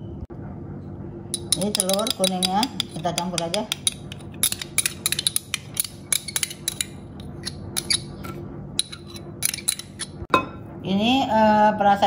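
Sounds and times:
metal spoon scraping glass dish: 0:01.5 - 0:10.2.

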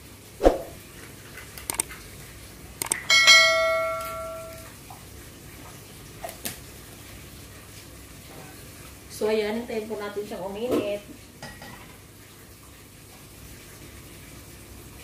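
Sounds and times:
mouse clicks: 0:01.7 - 0:01.9
notification bell ding: 0:03.1 - 0:04.6.

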